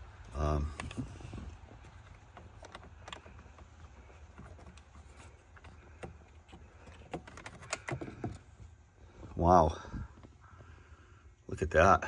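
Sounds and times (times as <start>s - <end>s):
plastic and metal parts clicking: 0.2s - 8.7s.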